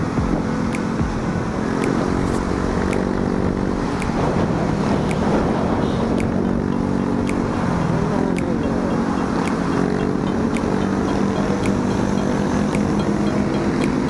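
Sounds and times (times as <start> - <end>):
wind rushing over microphone: 0.0 - 8.5
faint ticking: 0.0 - 14.0
motorcycle engine cruising: 0.0 - 14.0.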